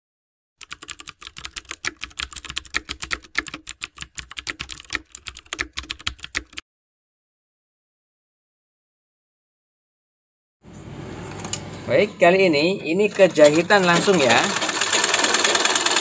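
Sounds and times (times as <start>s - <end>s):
keyboard typing clicks: 0.6s - 6.6s.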